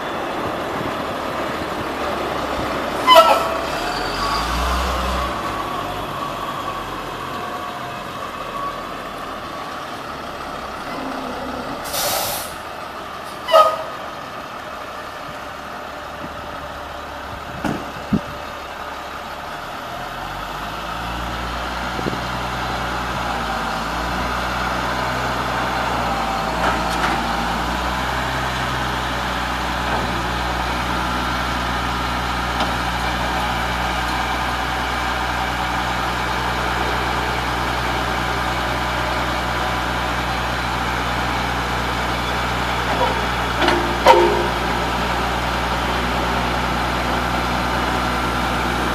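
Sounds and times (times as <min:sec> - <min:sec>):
truck engine running: 0:05.4 - 0:48.9
air brake hiss: 0:11.8 - 0:12.6.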